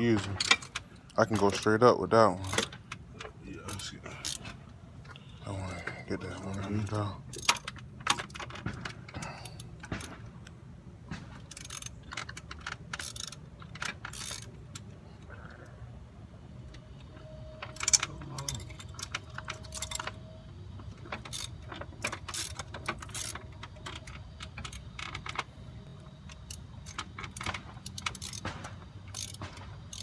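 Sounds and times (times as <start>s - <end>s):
metal tools clinking: 0.0s - 10.2s, 17.0s - 25.5s.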